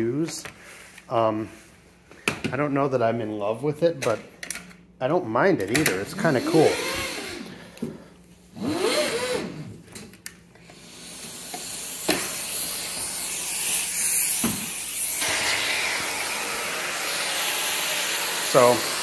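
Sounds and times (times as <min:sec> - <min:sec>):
vacuum suction hiss: 0:10.5 - 0:19.0.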